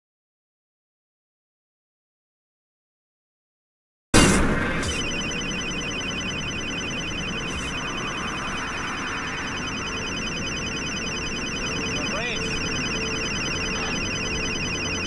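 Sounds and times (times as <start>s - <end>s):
rapid beeping alert: 4.2s - 15.0s.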